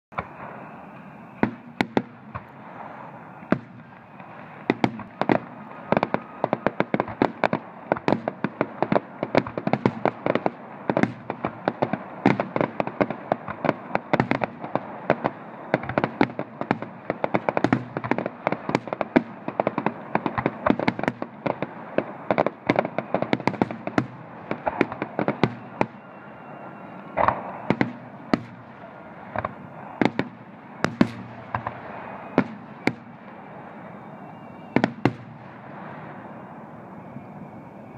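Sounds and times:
fireworks bangs: 0:00.1 - 0:37.9
steady hiss: 0:00.2 - 0:37.9.

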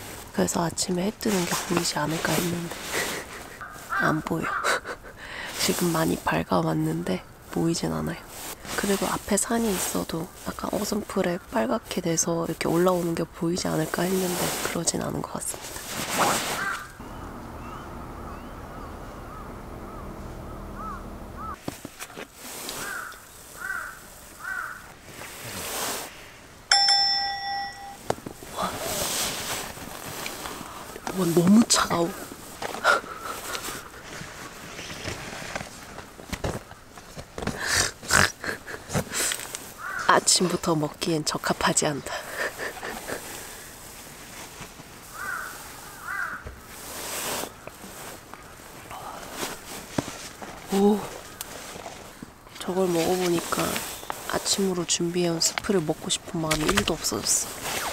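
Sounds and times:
padded jacket rustling: 0:01.1 - 0:04.0, 0:13.7 - 0:17.0, 0:20.8 - 0:37.4, 0:42.5 - 0:57.9
crow cawing: 0:03.6 - 0:04.8, 0:16.5 - 0:17.0, 0:17.7 - 0:21.6, 0:22.8 - 0:24.9, 0:39.8 - 0:40.2, 0:45.1 - 0:46.5
bird calling: 0:16.3 - 0:21.6, 0:22.7 - 0:25.0, 0:39.8 - 0:40.4, 0:45.1 - 0:46.6.

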